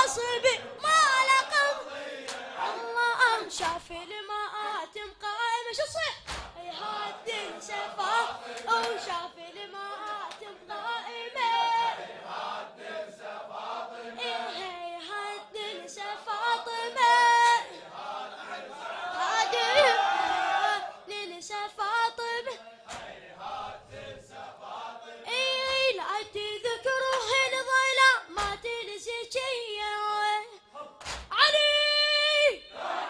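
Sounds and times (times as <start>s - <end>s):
men singing along: 0.0s - 3.0s, 6.7s - 14.7s, 22.6s - 25.3s.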